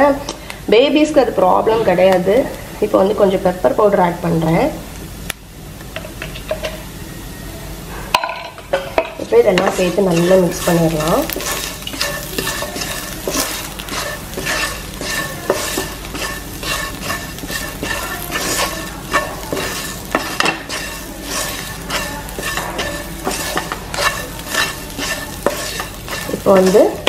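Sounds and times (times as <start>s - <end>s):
oil sizzling: 0.0s - 27.0s
wooden spatula scraping pan: 8.8s - 27.0s.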